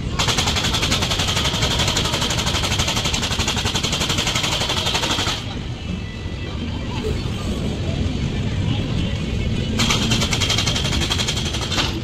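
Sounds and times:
low rumble of train coaches: 0.0 - 12.0
fast metallic train clatter: 9.7 - 12.0.

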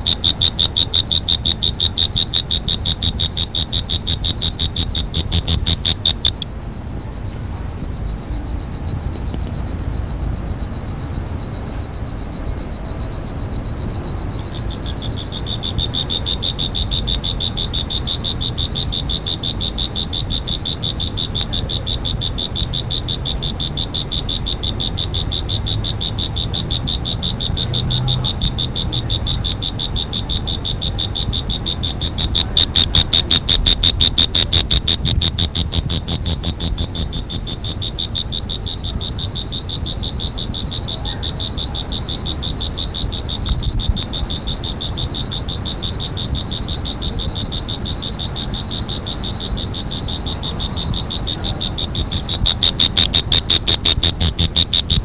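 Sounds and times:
insect trilling: 0.0 - 6.8, 12.3 - 55.0.

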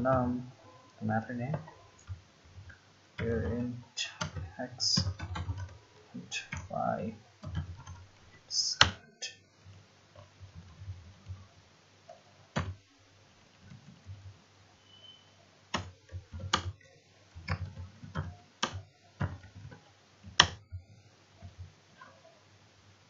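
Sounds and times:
keyboard keys clicking: 0.0 - 6.8, 7.4 - 9.1, 12.5 - 12.8, 15.7 - 20.7
low steady hum: 0.0 - 23.0.

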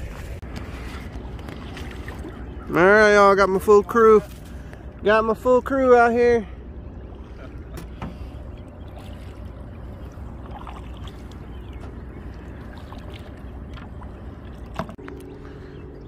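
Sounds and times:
paddle dipping in water: 0.0 - 2.8, 6.9 - 16.0
steady low rumble: 0.0 - 16.0.

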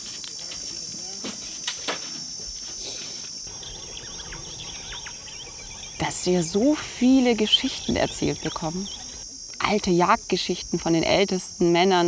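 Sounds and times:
insects shrilling: 0.0 - 12.0
faint bird chirps: 3.5 - 9.2.

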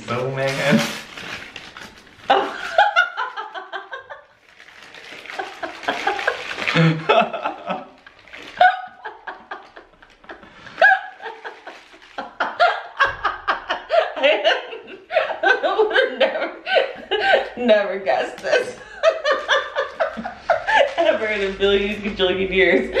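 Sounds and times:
woman laughing: 2.3 - 4.2, 5.4 - 17.7, 18.4 - 21.6.

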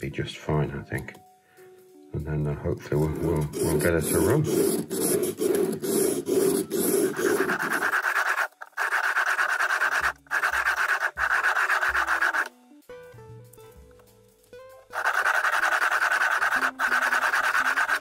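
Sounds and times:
soft background music: 0.0 - 18.0
pen scraping metal wheels: 3.0 - 12.5, 14.9 - 18.0.

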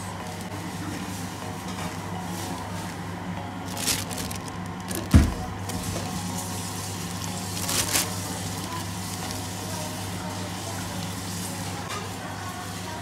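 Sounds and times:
plastic bag crinkling: 3.6 - 11.1.

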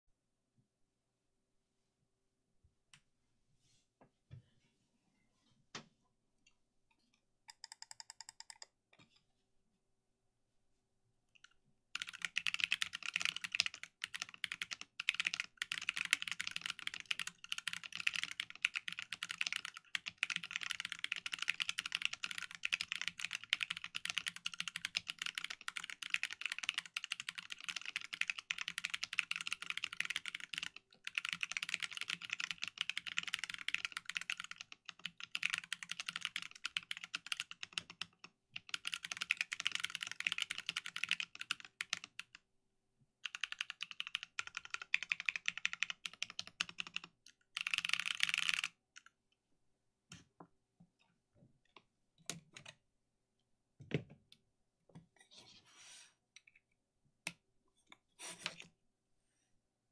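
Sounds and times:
mechanical keyboard typing: 7.5 - 8.7, 12.0 - 42.4, 43.2 - 49.1.

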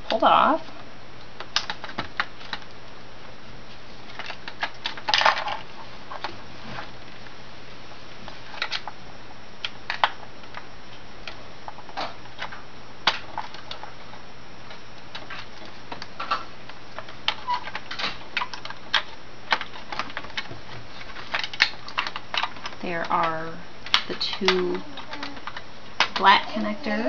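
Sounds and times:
faint steady hum: 0.0 - 27.0
plastic connectors clicking: 1.4 - 2.8, 21.2 - 26.4.

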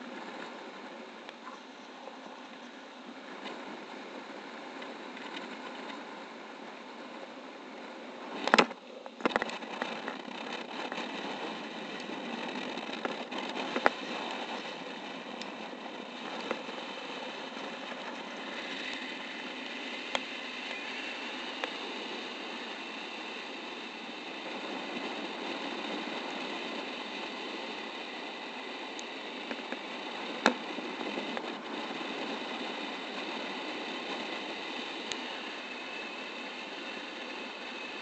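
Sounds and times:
airflow rushing over microphone: 0.0 - 38.0.

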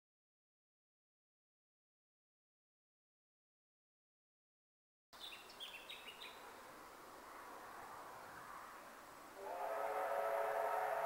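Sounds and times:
outdoor background noise: 5.1 - 11.0
birds chirping: 5.2 - 9.2
steam whistle blast: 9.4 - 11.0.

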